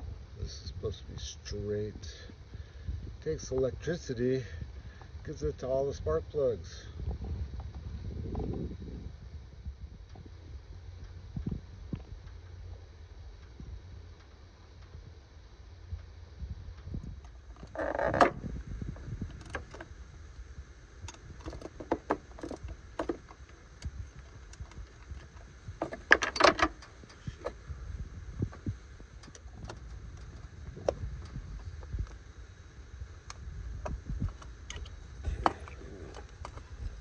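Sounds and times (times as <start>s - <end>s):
low rumble: 1.8s - 37.0s
small metallic rattles and clicks: 21.0s - 27.6s.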